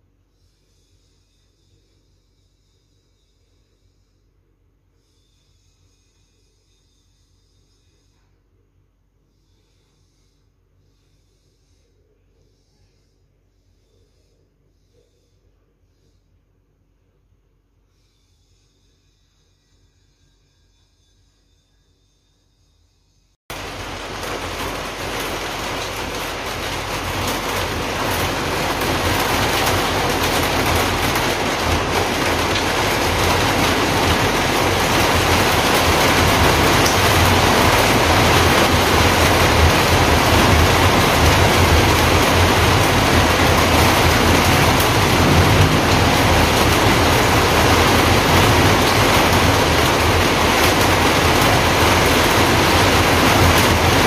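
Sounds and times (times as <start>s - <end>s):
heavy rain: 23.5s - 54.0s.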